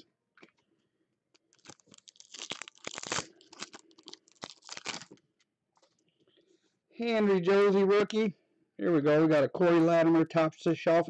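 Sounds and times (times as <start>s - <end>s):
card pack wrapper crackling: 1.3s - 5.2s.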